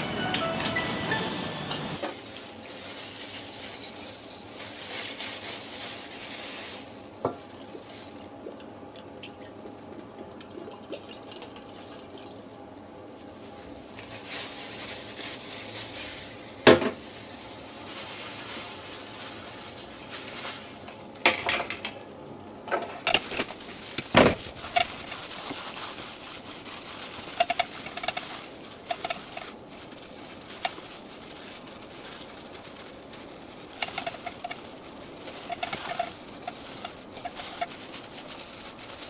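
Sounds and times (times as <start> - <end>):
hands handling raw chicken: 23.2 - 39.0.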